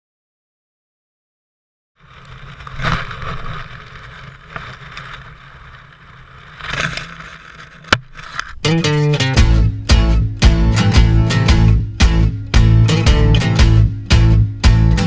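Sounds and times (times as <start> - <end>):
dry grass rustling: 2.0 - 11.4
guitar music: 8.6 - 15.0.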